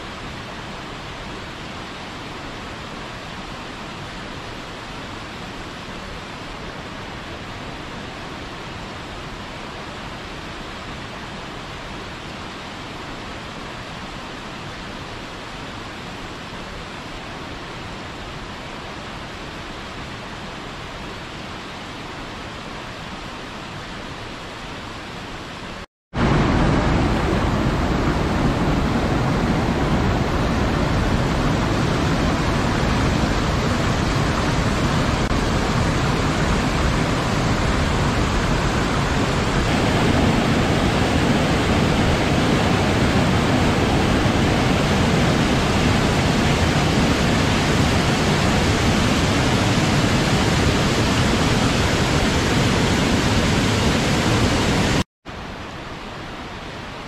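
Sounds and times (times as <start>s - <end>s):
waterfall rushing: 25.6s - 56.4s.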